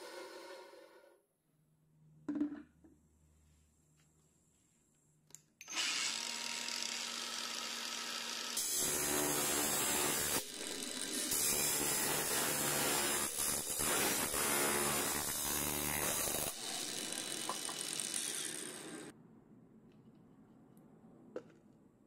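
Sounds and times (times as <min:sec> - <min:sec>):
angle grinder cutting plastic: 0:05.6 - 0:19.1.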